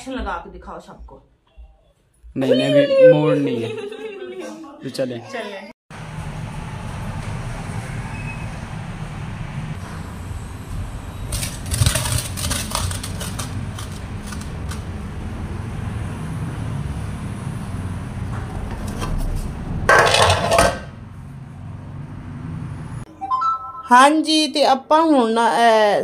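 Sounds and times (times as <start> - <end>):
metal lid clattering onto pot: 19.9 - 20.9.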